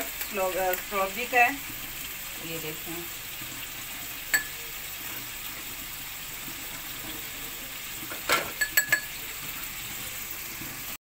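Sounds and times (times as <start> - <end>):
spoon clinking against glass: 4.3 - 4.5, 8.3 - 9.2
spoon stirring in glass bowl: 8.3 - 9.2.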